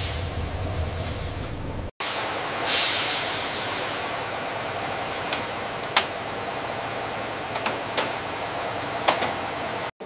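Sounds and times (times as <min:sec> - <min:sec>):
hissing air burst: 0:00.0 - 0:04.1.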